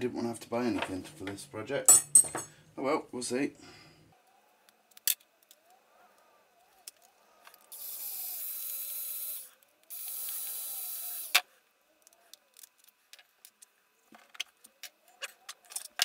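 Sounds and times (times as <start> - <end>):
cordless screwdriver running: 7.7 - 11.4.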